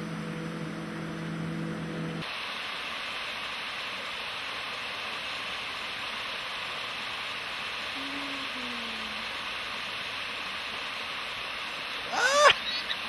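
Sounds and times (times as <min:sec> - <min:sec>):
outboard motor humming: 0:00.0 - 0:02.2
waterfall rushing hiss: 0:02.2 - 0:13.0.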